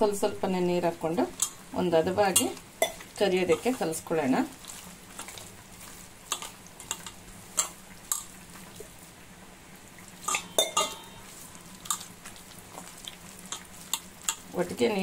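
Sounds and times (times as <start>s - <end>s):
hand mixing batter in bowl: 2.3s - 7.2s, 11.2s - 15.0s
clinks against steel bowl: 10.2s - 11.1s.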